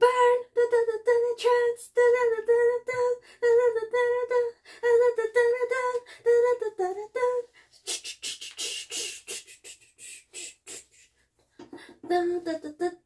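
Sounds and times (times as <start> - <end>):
mouth clicks and hisses: 7.8 - 11.1
woman humming and beatboxing: 7.9 - 11.1.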